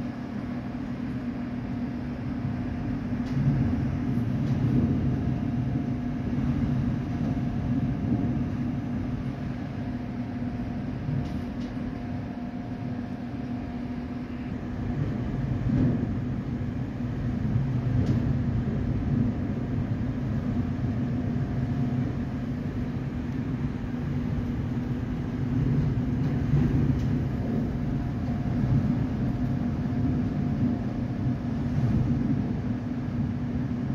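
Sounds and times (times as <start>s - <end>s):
storm wind gusting: 0.1s - 33.9s.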